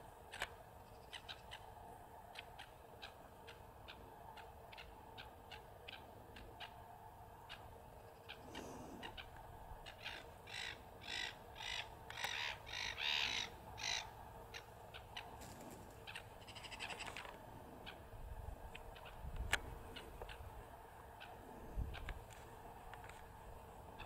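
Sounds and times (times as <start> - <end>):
crow cawing: 10.0 - 14.1, 16.4 - 17.2.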